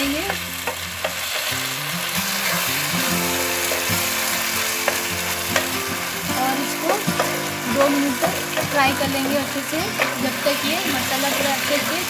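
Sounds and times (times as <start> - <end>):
food sizzling in a frying pan: 0.0 - 12.0
spatula clicking against pan: 4.8 - 5.8, 6.8 - 9.4, 10.0 - 10.2.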